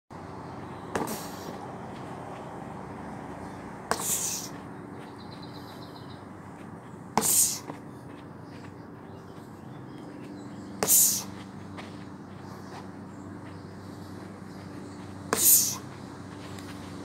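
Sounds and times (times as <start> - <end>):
steady low hum: 0.1 - 17.0
kicks hitting rubber tyres: 0.9 - 2.5, 3.8 - 4.7, 6.6 - 8.7, 10.2 - 12.2, 15.0 - 17.0.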